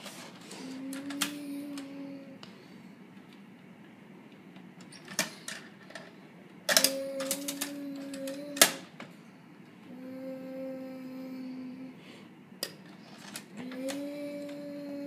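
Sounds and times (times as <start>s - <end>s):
plastic toy clicks and clatter: 6.7s - 8.8s.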